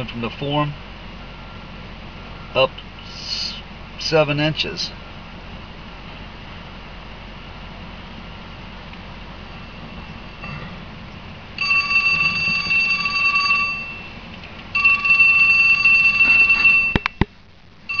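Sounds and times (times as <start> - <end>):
high electronic alarm tone: 11.6 - 14.2, 14.8 - 17.1.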